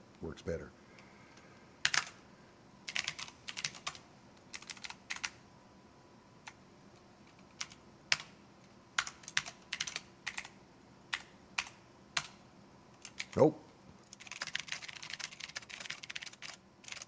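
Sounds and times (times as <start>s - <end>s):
computer keyboard typing: 1.8s - 2.2s, 2.9s - 5.4s, 7.2s - 8.4s, 9.0s - 12.4s, 13.0s - 13.4s, 14.0s - 17.0s.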